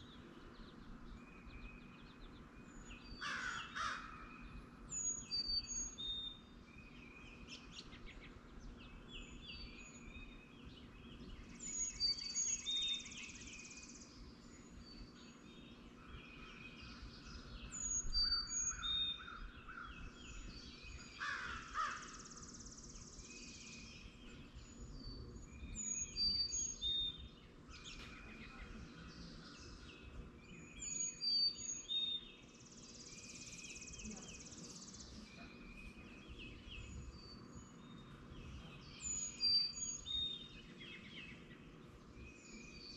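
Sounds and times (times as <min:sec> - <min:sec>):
songbirds whistling and trilling: 0:00.0 - 0:42.9
crow cawing: 0:03.2 - 0:04.2, 0:21.2 - 0:22.2.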